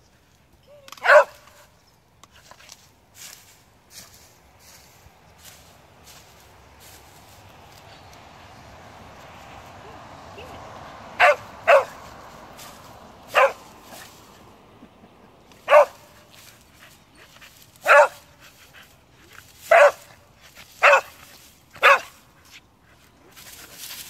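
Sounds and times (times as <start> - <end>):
dog barking: 1.0 - 1.5, 11.2 - 12.0, 13.3 - 13.7, 15.7 - 16.1, 17.8 - 18.3, 19.7 - 20.1, 20.8 - 21.2, 21.8 - 22.2.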